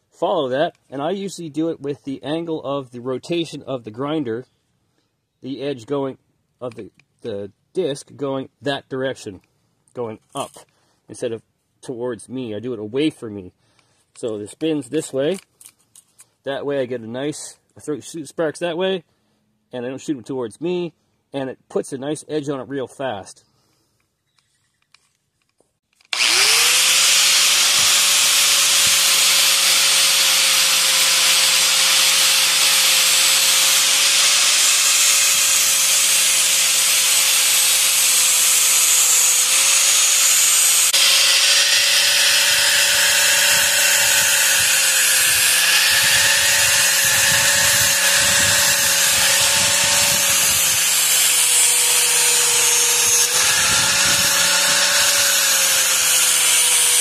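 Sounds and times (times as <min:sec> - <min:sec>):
angle grinder grinding steel: 0:26.1 - 0:57.0.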